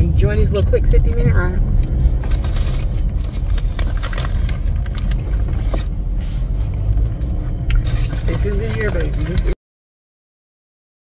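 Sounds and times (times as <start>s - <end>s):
car cabin road rumble: 0.0s - 9.6s.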